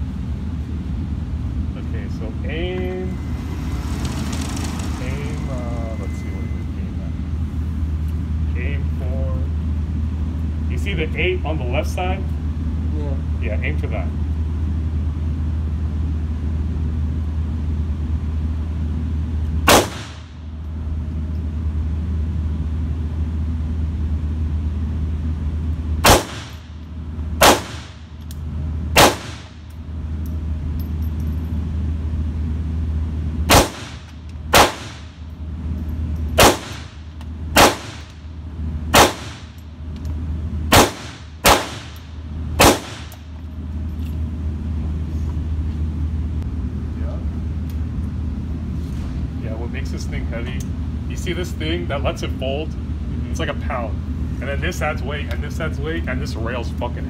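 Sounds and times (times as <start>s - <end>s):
steady low hum: 0.0s - 57.0s
pistol shots with echo: 19.7s - 20.3s, 26.0s - 26.7s, 27.4s - 28.0s, 29.0s - 29.6s, 33.5s - 35.1s, 36.4s - 37.0s, 37.6s - 38.1s, 38.9s - 39.5s, 40.7s - 42.0s, 42.6s - 43.2s.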